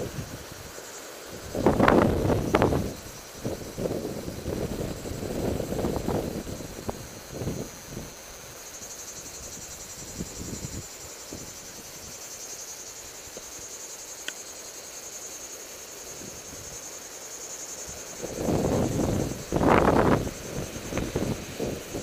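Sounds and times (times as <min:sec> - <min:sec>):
wind rushing on microphone: 0:00.0 - 0:00.7, 0:01.3 - 0:12.2, 0:17.9 - 0:22.0
cicadas buzzing: 0:00.0 - 0:22.0.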